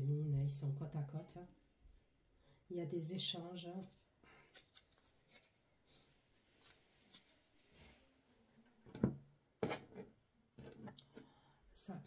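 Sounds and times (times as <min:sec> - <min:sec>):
cards rustling and tapping: 0:04.5 - 0:05.7.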